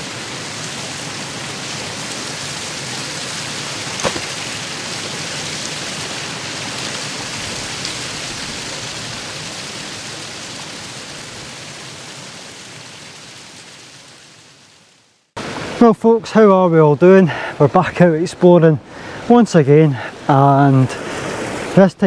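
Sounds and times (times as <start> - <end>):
heavy rain pouring: 0.0 - 16.0.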